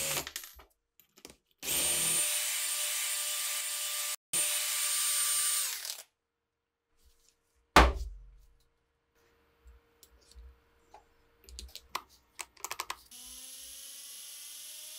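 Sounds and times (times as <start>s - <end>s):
drill motor whining: 13.1s - 14.9s.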